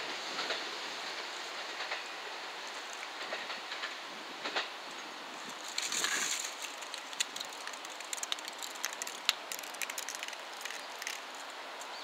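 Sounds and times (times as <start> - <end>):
train hiss: 0.0 - 6.6
wheels clicking on rails: 0.0 - 12.0.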